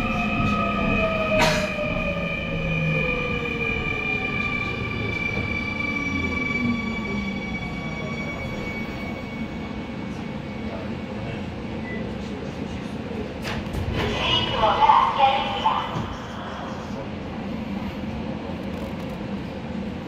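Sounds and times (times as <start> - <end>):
wheels rumbling on rail: 15.6 - 20.0.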